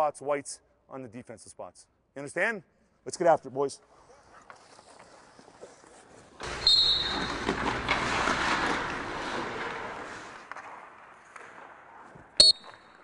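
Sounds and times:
skates scraping on ice: 0:03.8 - 0:13.0
hockey stick knocking puck: 0:04.5 - 0:13.0
whistle blast: 0:06.6 - 0:07.4, 0:12.4 - 0:12.8.

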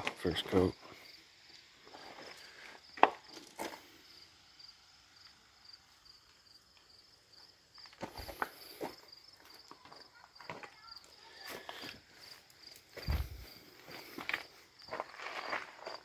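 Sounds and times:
insect chirping: 0:00.0 - 0:16.0
footsteps on gravel: 0:01.6 - 0:03.9, 0:07.4 - 0:16.0.

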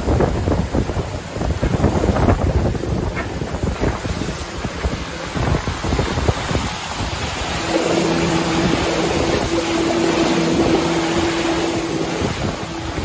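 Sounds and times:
water rushing past hull: 0:00.0 - 0:13.0
wind: 0:00.0 - 0:13.0
steady low humming tone: 0:03.0 - 0:13.0.

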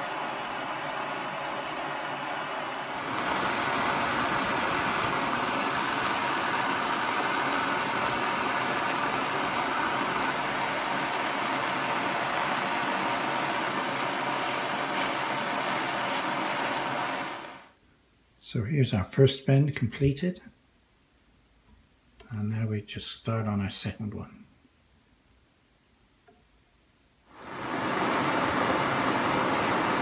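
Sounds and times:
gas torch hissing: 0:00.0 - 0:17.7, 0:27.3 - 0:30.0.

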